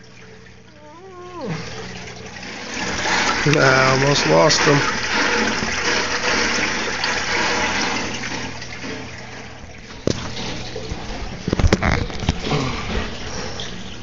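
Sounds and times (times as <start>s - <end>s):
water rushing and splashing: 0.0s - 14.0s.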